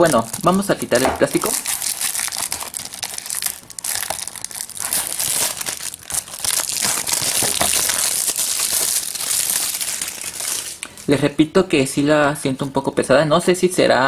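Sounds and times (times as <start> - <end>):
plastic wrap crinkling: 0.0 - 11.1.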